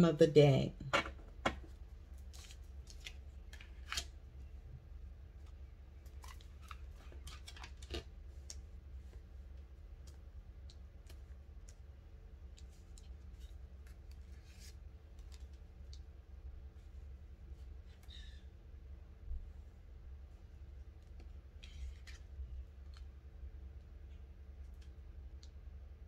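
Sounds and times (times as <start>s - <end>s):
faint low hum: 0.0s - 26.0s
cards clicking and snapping: 1.1s - 4.1s, 6.0s - 8.6s.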